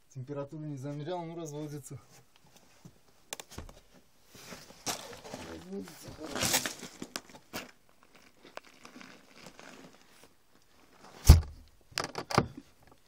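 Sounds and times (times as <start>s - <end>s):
rustles and knocks of handling: 2.0s - 13.0s
heavy thump: 11.2s - 11.7s.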